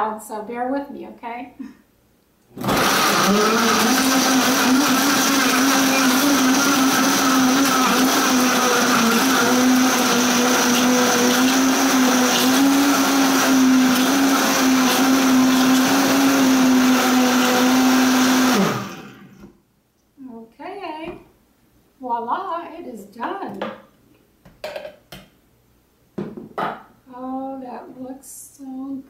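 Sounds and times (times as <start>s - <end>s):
blender motor whining: 2.6s - 19.4s.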